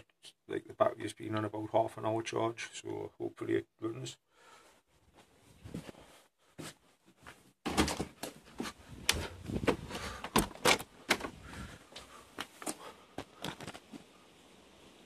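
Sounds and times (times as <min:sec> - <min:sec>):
footsteps: 0:05.0 - 0:10.4, 0:11.1 - 0:14.1
door opening: 0:07.7 - 0:08.4, 0:09.1 - 0:11.4.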